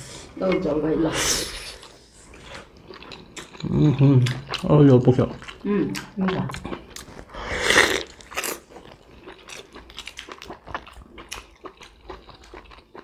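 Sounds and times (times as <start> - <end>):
wet chewing and lip-smacking: 1.7 - 13.0.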